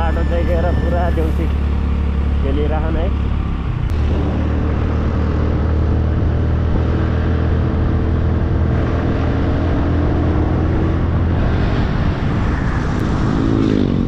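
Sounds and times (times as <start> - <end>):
scooter engine humming: 0.0 - 11.4
wind noise on microphone: 3.8 - 14.0.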